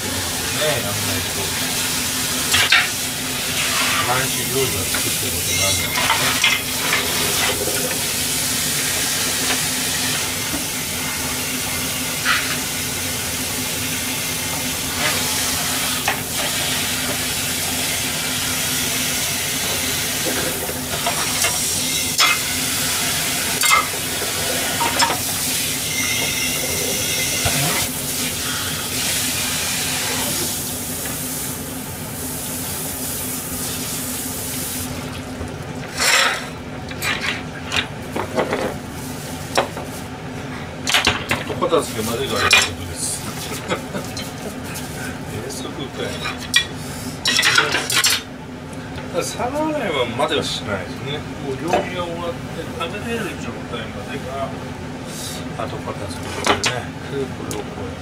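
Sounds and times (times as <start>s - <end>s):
tap water running into sink: 0.0s - 10.8s, 32.9s - 35.9s
clinks of metal and dishes: 44.0s - 44.4s, 46.1s - 48.3s.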